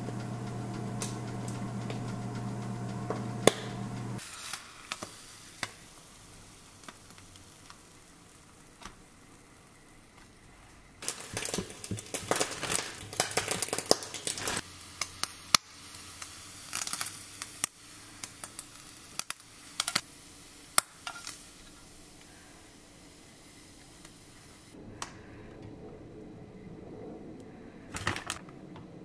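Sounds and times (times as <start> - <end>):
bacon crackling: 0.0 - 10.3, 11.0 - 22.5
kitchen tongs clicking: 18.2 - 20.0.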